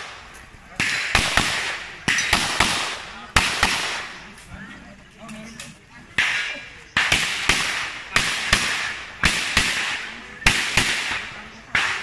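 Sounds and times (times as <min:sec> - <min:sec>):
pistol shots: 0:00.8 - 0:04.1, 0:06.2 - 0:12.0.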